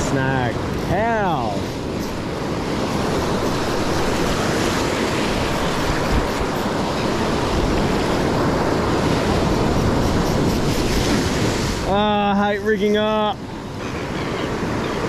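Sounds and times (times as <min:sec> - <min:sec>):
wind buffeting microphone: 0:00.0 - 0:11.9
surf breaking on sand: 0:00.0 - 0:15.0.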